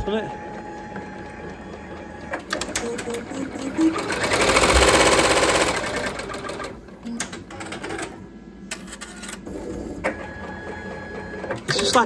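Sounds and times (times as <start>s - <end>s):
embroidery machine stitching: 1.0s - 8.1s
machine clicks and clunks: 1.8s - 3.9s.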